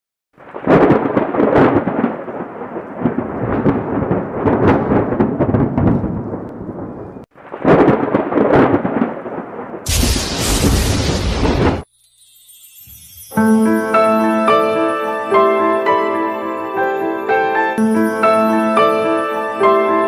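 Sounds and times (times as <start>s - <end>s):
thunder rumbling: 0.4s - 11.9s.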